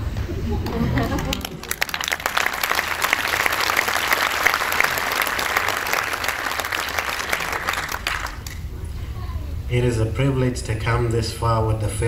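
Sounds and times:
audience applauding: 0.6s - 8.7s.

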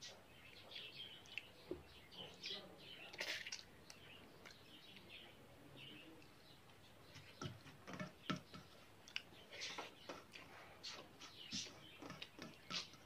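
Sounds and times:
mouth clicks and smacks chewing: 1.2s - 1.6s, 9.0s - 10.5s.

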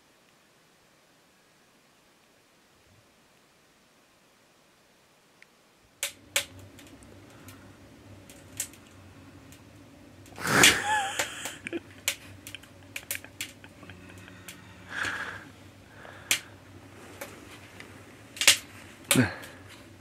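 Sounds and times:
steady low hum: 5.7s - 20.0s
sharp clicks and taps: 10.6s - 15.2s.

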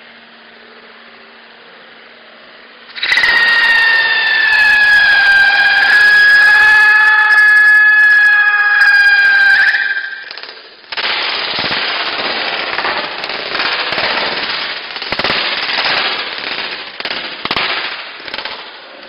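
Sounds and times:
firecrackers popping: 2.9s - 6.6s, 9.2s - 19.0s
loud bangs: 9.2s - 19.0s.

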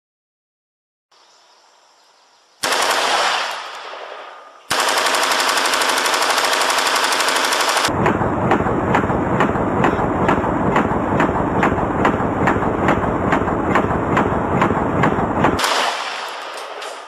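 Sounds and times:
loud gunshot blast: 2.6s - 4.8s, 7.8s - 16.6s
rifle firing automatic bursts: 2.6s - 7.9s, 8.9s - 17.0s.

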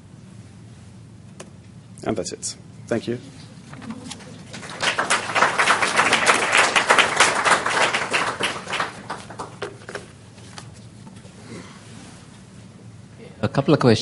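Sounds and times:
audience applauding: 3.7s - 10.0s.

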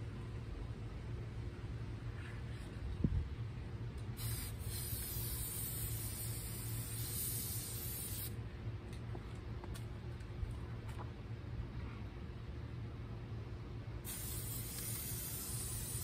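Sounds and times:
spray paint can hissing: 4.1s - 8.4s, 14.0s - 16.0s.

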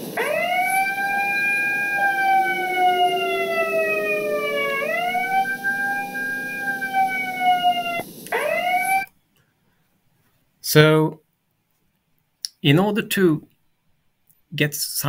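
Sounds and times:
fainter low siren tone: 0.0s - 9.1s
wailing alarm siren: 0.0s - 9.1s.

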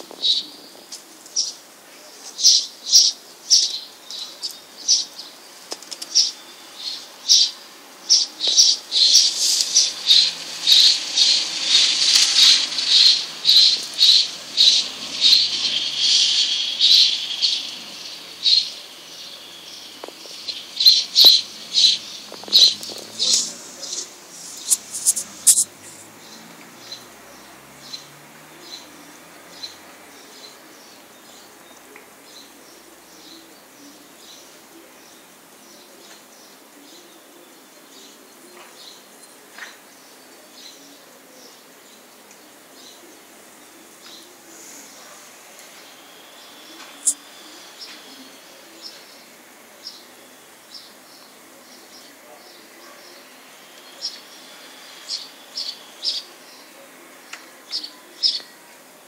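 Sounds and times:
faint steady hiss: 0.0s - 59.0s
small animal chirping: 8.5s - 18.7s, 20.3s - 26.1s, 46.9s - 47.3s.

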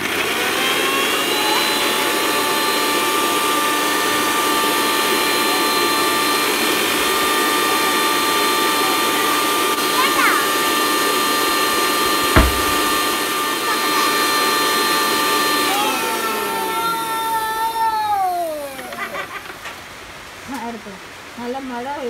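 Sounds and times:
mixer grinder motor whine: 0.0s - 9.7s.

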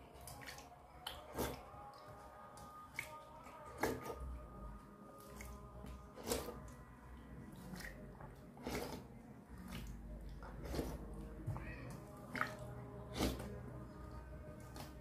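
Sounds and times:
hand squishing wet rice: 5.2s - 11.4s.

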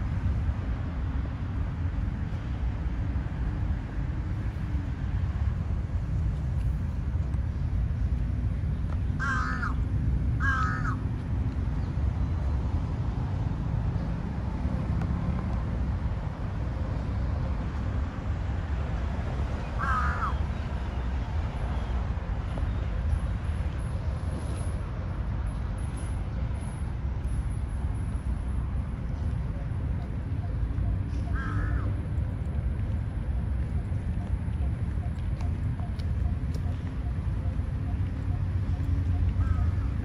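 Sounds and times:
steady low rumble: 0.0s - 40.0s
crow cawing: 9.2s - 9.8s, 10.4s - 11.0s, 19.8s - 20.4s, 31.3s - 31.9s, 39.4s - 39.9s.

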